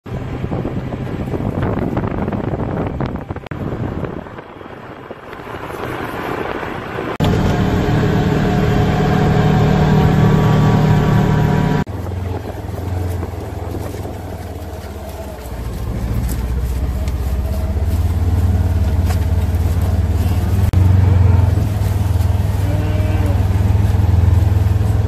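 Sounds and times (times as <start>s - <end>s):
wind on microphone: 0.1s - 7.3s
vehicle engine idling: 6.9s - 25.0s.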